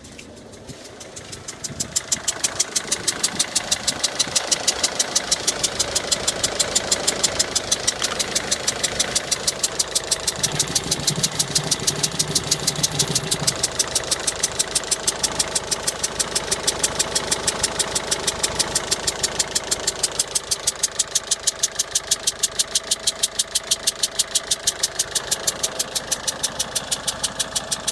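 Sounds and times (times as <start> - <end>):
quick even ticking: 0.0 - 18.8
car engine idling: 0.0 - 27.9.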